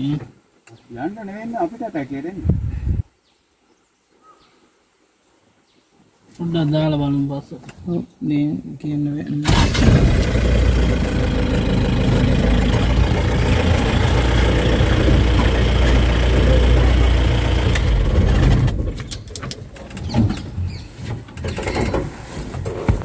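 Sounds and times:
vehicle engine idling: 0:09.5 - 0:19.0.

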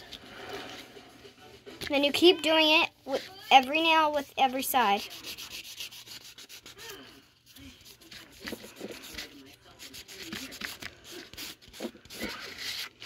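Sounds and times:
nail buffer scratching fingernails: 0:04.8 - 0:07.0, 0:07.6 - 0:13.0.

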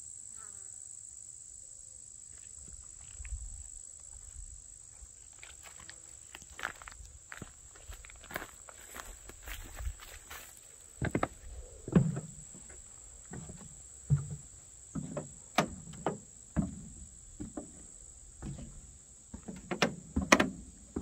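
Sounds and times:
high insect trill: 0:00.0 - 0:21.0
footsteps on wooden boards: 0:05.4 - 0:21.0.

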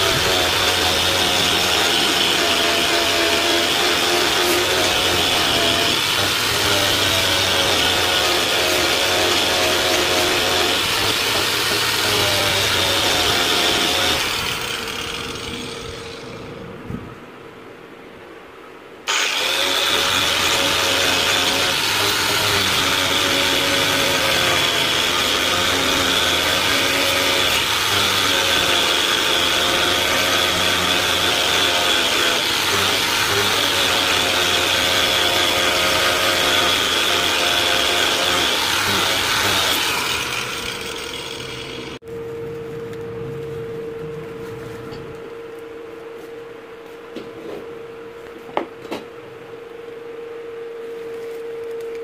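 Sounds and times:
angle grinder grinding metal: 0:00.0 - 0:16.6, 0:19.1 - 0:42.0.

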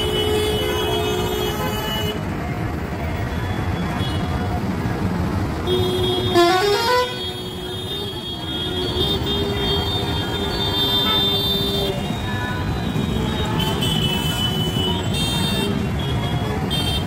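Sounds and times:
street traffic rumble: 0:00.0 - 0:17.0
vehicle horn honking: 0:05.7 - 0:12.2.

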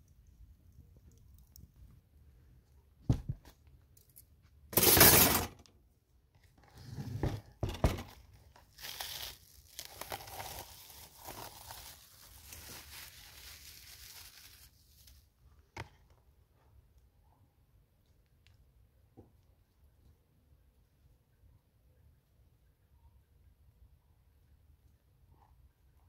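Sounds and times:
metal skewers clattering on table: 0:04.8 - 0:05.5.

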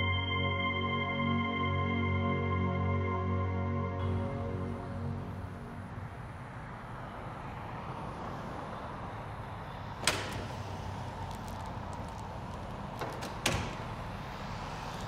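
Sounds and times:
glass door clacking: 0:10.0 - 0:10.8, 0:13.0 - 0:14.1.

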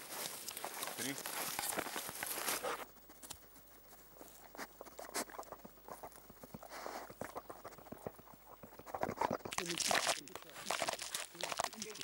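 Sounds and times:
footsteps in long grass: 0:00.0 - 0:02.9.

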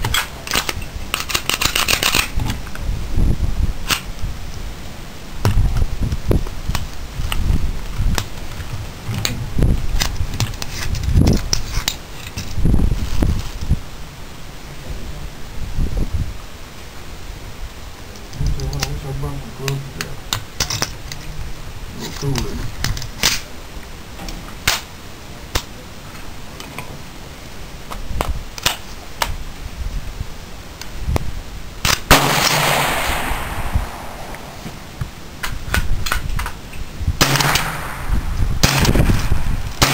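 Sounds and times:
rustling noise: 0:00.0 - 0:14.4, 0:25.6 - 0:39.9
low rumbling on microphone: 0:02.4 - 0:11.6, 0:32.6 - 0:39.8
gunshots: 0:31.9 - 0:35.0, 0:37.2 - 0:39.9.

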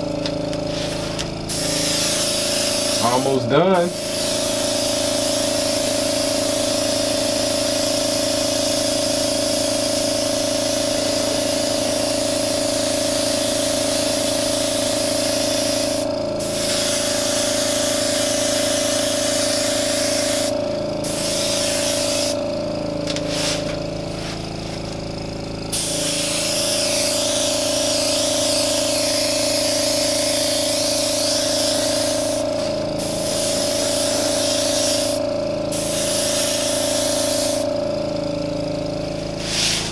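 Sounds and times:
air compressor humming: 0:00.0 - 0:39.9
airbrush hissing: 0:00.6 - 0:05.9, 0:13.5 - 0:37.8, 0:39.2 - 0:39.9.

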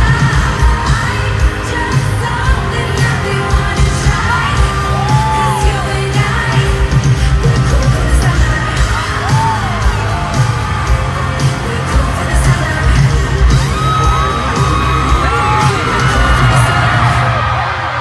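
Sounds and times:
woman singing into a microphone: 0:00.0 - 0:10.4, 0:11.2 - 0:14.3
loud band with heavy bass: 0:00.0 - 0:18.0.

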